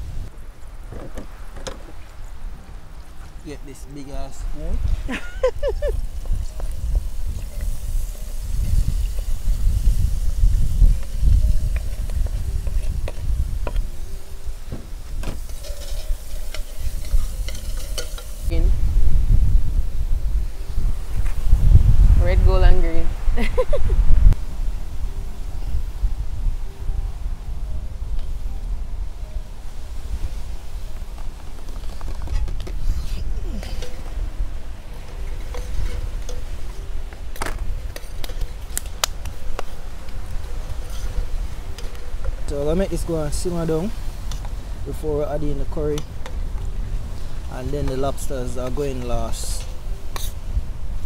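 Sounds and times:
metal clinking on metal: 15.2s - 18.5s
metal spoon scraping a pot: 15.4s - 18.5s, 33.5s - 34.2s, 34.9s - 36.6s
vegetables sizzling in oil: 15.4s - 18.6s.

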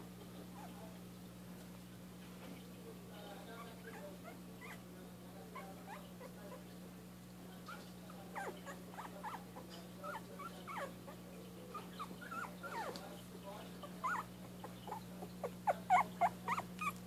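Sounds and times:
steady low hum: 0.0s - 17.0s
puppies squeaking and whimpering: 3.6s - 4.9s, 7.7s - 13.0s, 13.8s - 17.0s.

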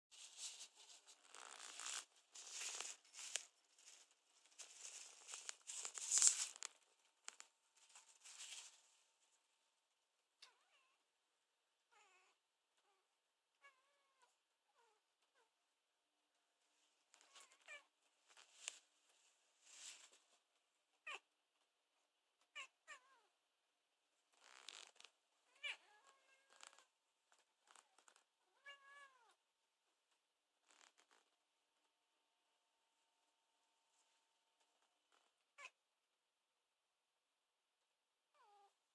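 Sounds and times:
soft rustle: 0.1s - 9.4s, 16.6s - 20.6s.

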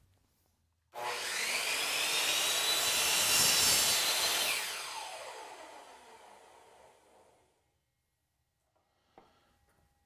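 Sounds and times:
miter saw cutting wood: 1.0s - 7.4s.

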